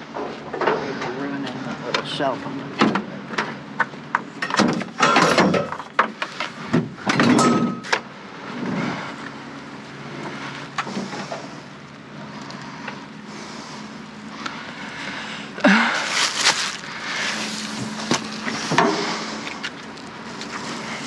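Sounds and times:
engine humming: 0.0s - 21.0s
objects clattering in dumpster: 2.8s - 9.0s, 15.7s - 20.8s.

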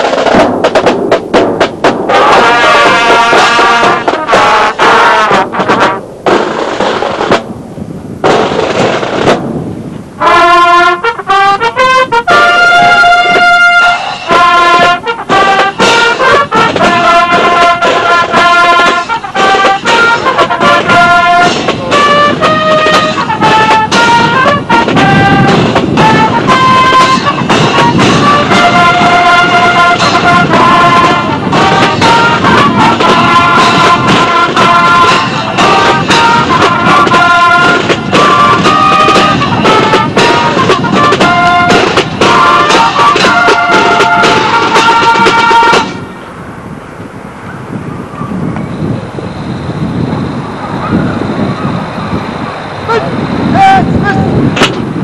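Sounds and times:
marching band playing: 0.0s - 7.6s, 8.2s - 46.1s
drums: 0.0s - 46.1s
trombones and trumpets playing: 2.1s - 7.4s, 10.2s - 46.1s.

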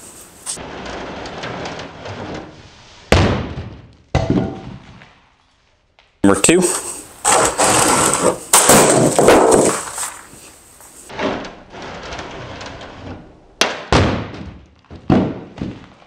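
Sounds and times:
heavy block hitting plastic lid: 3.1s - 4.9s, 8.2s - 10.0s, 13.6s - 15.8s.

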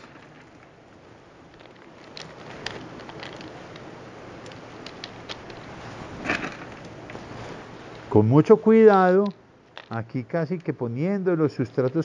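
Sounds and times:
bark and gravel rustling: 1.5s - 8.2s.

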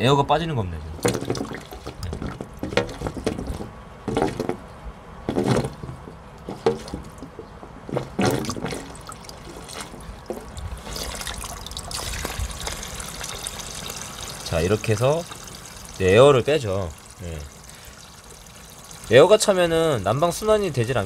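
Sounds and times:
water and air sputtering from hose: 7.9s - 21.0s.

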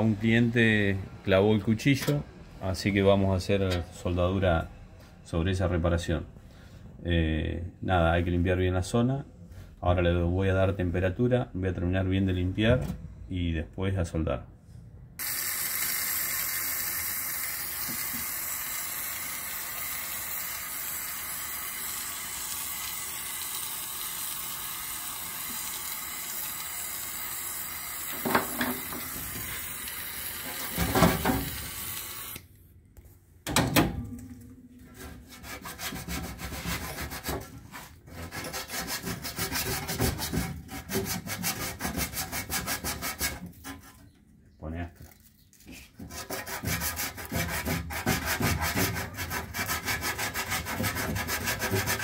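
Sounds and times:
gas torch flame hissing: 15.2s - 32.5s
hand tool scrubbing metal: 34.9s - 44.0s, 46.0s - 52.0s.

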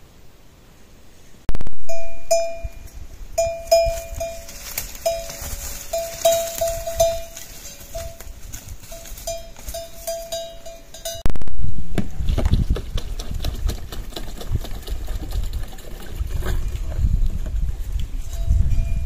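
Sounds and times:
livestock bells clanking: 1.9s - 11.3s, 18.2s - 19.0s.

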